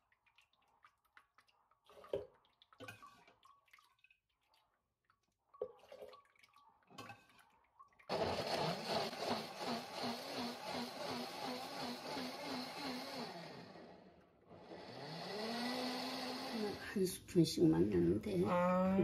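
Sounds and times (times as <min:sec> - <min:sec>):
liquid sloshing in basin: 0:00.0 - 0:08.1.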